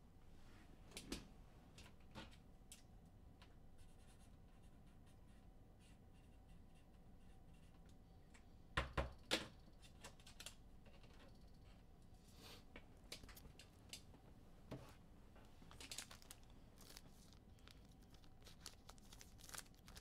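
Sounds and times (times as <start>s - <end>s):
trading cards handled: 15.6s - 20.0s.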